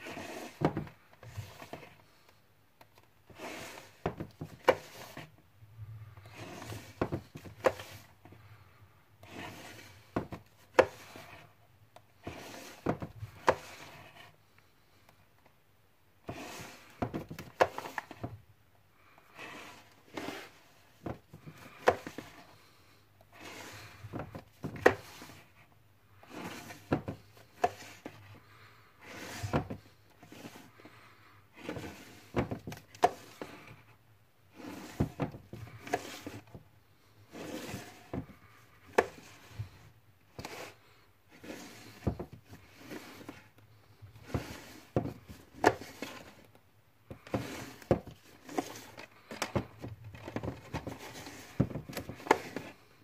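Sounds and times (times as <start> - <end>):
cases sliding on shelf: 0.0 - 2.1, 3.0 - 5.3, 6.2 - 8.4, 9.2 - 11.6, 12.2 - 14.3, 16.2 - 18.4, 19.3 - 22.7, 23.3 - 25.6, 26.2 - 33.9, 34.5 - 53.0
plastic cases clicking and knocking: 47.1 - 52.8.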